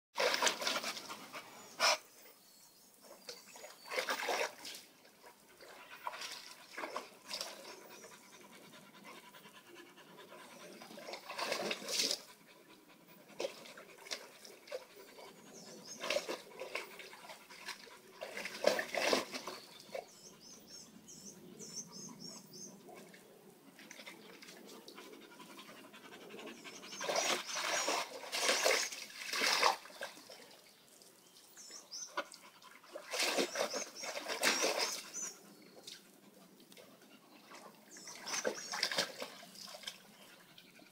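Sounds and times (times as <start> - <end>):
water splashing in plastic pool: 0.2 - 1.4, 3.2 - 7.9, 10.8 - 12.4, 13.3 - 15.0, 15.9 - 20.2, 27.0 - 31.5, 32.1 - 36.0, 36.6 - 40.2
dogs panting: 7.4 - 11.2, 24.6 - 28.1.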